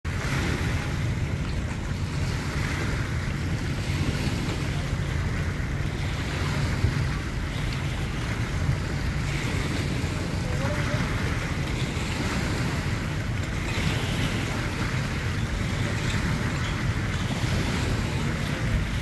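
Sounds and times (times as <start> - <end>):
small waves washing: 0.0 - 19.0
wind buffeting microphone: 0.0 - 19.0.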